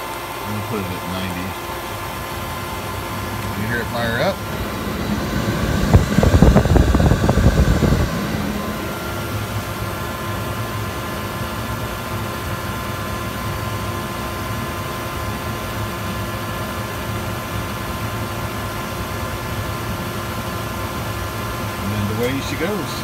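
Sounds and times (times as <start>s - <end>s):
pool heater humming: 0.0s - 23.0s.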